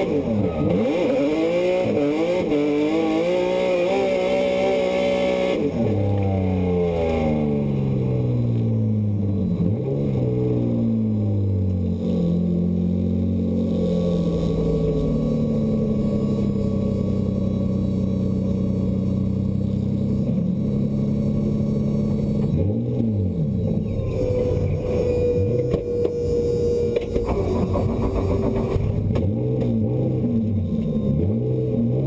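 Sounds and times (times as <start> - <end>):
tyre squeal: 0.0 - 4.5, 23.6 - 28.9
car engine revving: 0.0 - 32.0.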